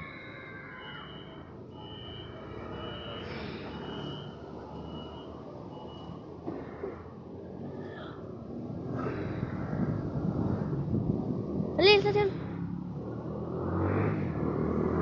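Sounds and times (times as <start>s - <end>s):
low hum of train: 0.0s - 12.8s
short high warning beeps: 1.0s - 6.2s.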